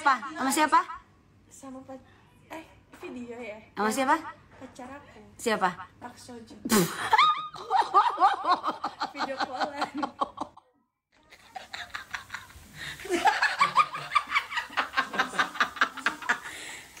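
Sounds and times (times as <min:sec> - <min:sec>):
hearty laughter: 0:11.3 - 0:16.5.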